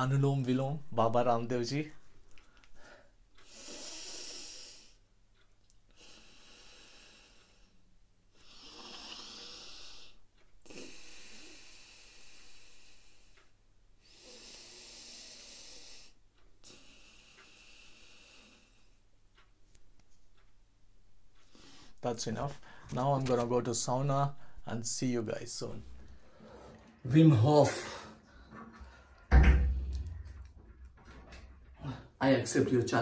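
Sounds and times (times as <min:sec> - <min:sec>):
man breathing through nose: 0:02.7 - 0:05.0, 0:05.9 - 0:07.8, 0:08.4 - 0:19.0.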